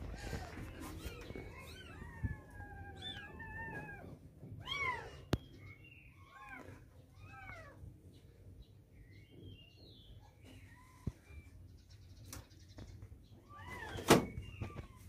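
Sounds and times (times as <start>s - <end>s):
kittens mewing: 0.0s - 5.4s, 6.1s - 8.0s.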